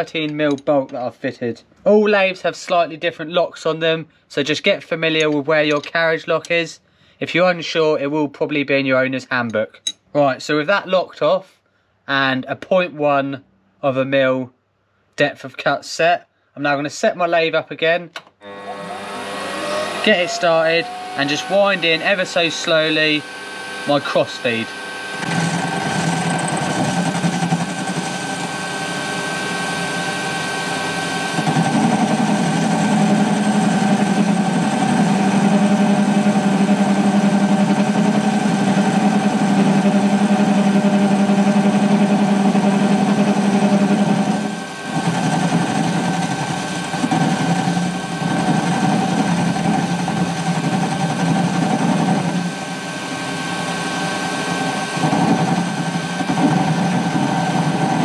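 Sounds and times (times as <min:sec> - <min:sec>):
lathe motor hum and whine: 0:18.4 - 0:58.0.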